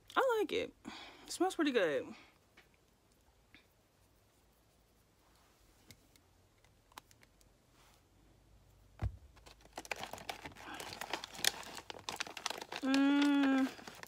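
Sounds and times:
soft thump: 9.0 - 9.4
packaging crinkling: 9.0 - 14.0.

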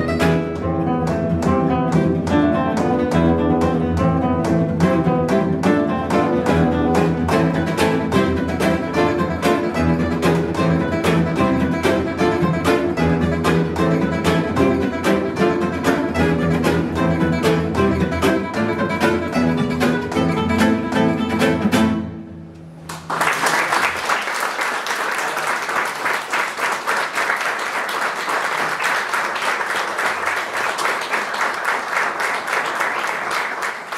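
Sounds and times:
nylon-string guitars strumming: 0.0 - 22.8
audience applauding: 22.9 - 33.9.

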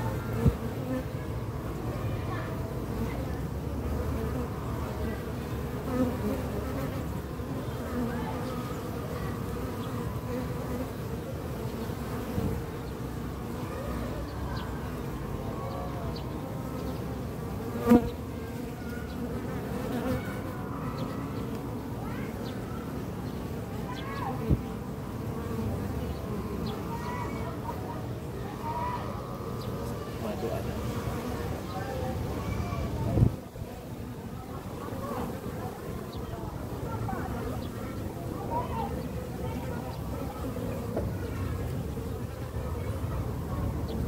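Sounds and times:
bees humming: 3.9 - 33.0.

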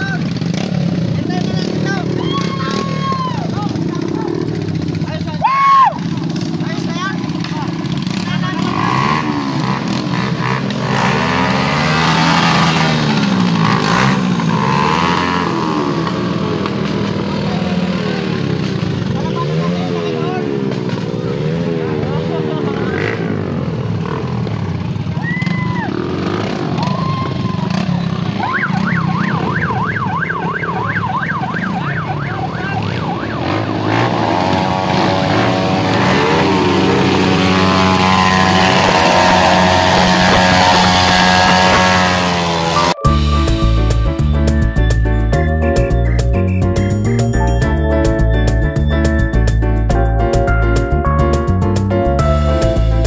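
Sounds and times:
motorcycle engines revving: 0.0 - 53.0
electronic siren wailing: 28.3 - 34.1.

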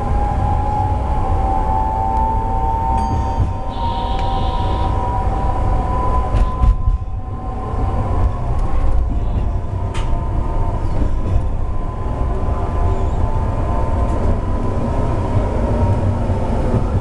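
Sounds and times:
train low rumble: 0.0 - 17.0
wheels clacking on track: 3.0 - 4.6, 8.2 - 11.6.

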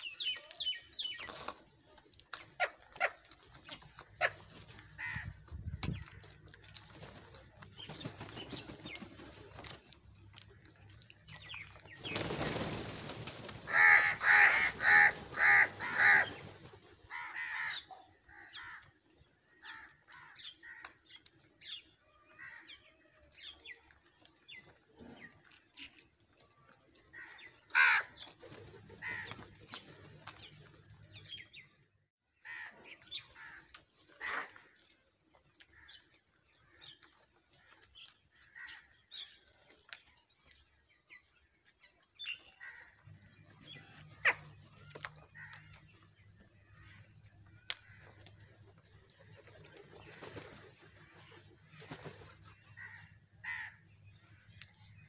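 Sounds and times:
wings flapping: 3.0 - 10.0, 11.5 - 17.2, 27.2 - 31.1, 47.7 - 52.6
crows cawing: 4.9 - 5.4, 13.7 - 16.4, 17.1 - 18.9, 19.6 - 21.0, 22.4 - 22.7, 27.1 - 28.2, 29.0 - 29.4, 32.4 - 34.7, 38.4 - 38.9, 42.6 - 43.0, 52.8 - 53.8.

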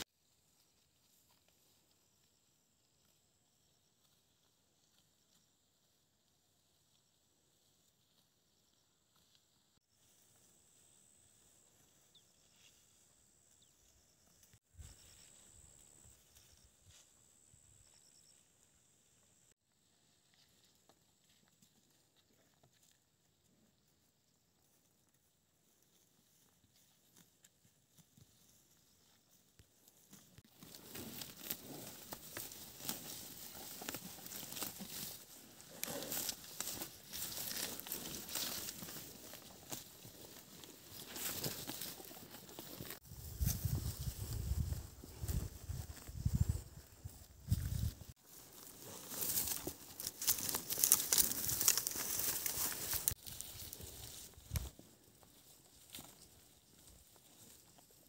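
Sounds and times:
dry vegetation rustling and crackling: 25.6 - 58.0.

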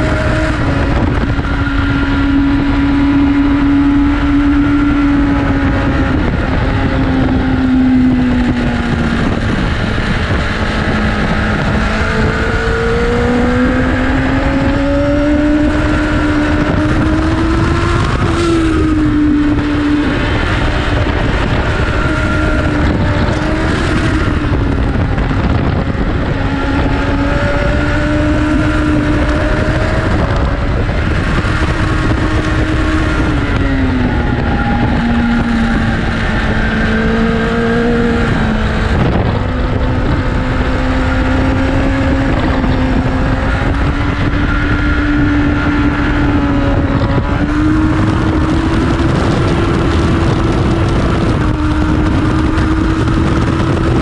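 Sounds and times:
motorcycle engine revving: 0.0 - 54.0
wind rushing: 0.0 - 54.0.

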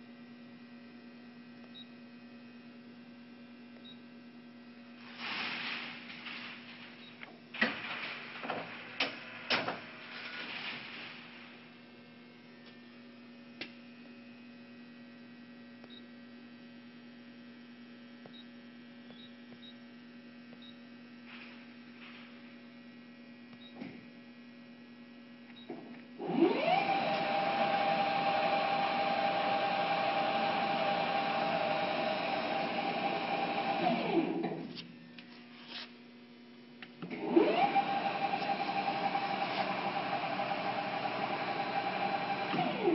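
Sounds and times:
lathe spindle whine: 26.2 - 34.4, 37.2 - 42.9.

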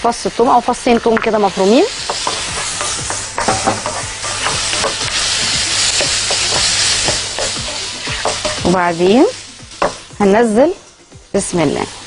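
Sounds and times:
onions sizzling in oil: 0.0 - 12.0
spatula scraping a pan: 1.1 - 9.3.

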